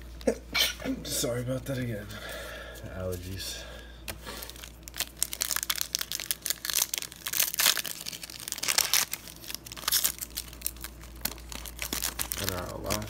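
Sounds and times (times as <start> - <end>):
foil wrapper crinkling: 4.1 - 13.0.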